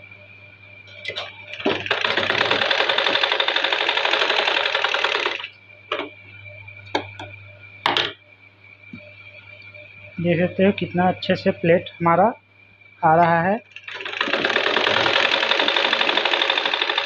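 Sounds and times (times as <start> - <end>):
sewing machine stitching: 1.1 - 5.5, 13.7 - 17.0.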